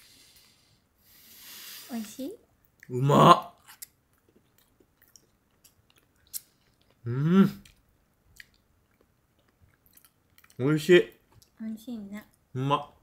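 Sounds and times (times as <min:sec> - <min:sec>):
faint chewing: 0:03.6 - 0:07.0, 0:07.6 - 0:11.6
man humming mmm: 0:07.1 - 0:07.6.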